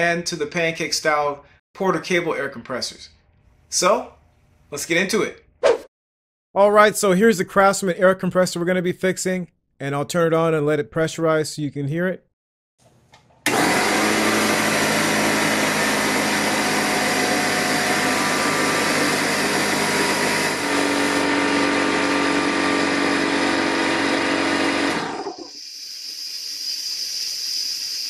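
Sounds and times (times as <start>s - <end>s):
air compressor running: 13.5s - 27.4s
air hissing from leak: 25.3s - 28.0s.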